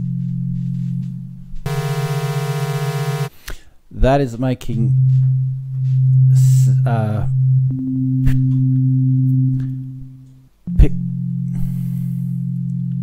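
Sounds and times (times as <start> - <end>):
low sine hum: 0.0 - 3.3, 4.8 - 13.0
higher steady tone: 1.7 - 3.3, 10.7 - 13.0.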